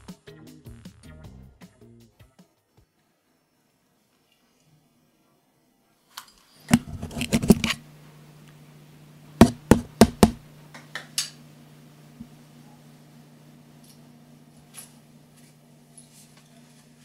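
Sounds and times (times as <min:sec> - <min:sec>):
steady low hum: 0:06.6 - 0:17.0
hard knocks: 0:09.4 - 0:10.4.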